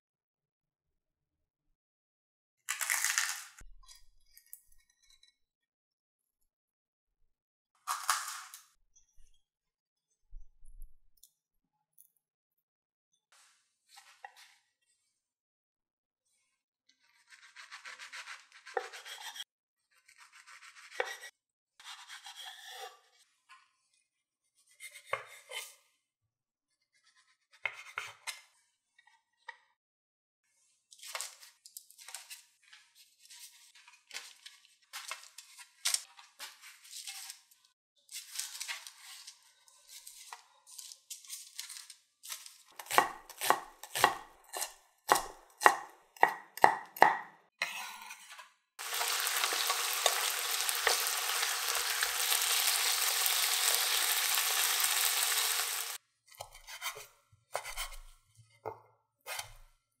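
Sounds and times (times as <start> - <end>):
knife slicing meat: 17.1 - 19.4, 48.9 - 57.0
knife chopping on a wooden board: 42.8 - 47.3.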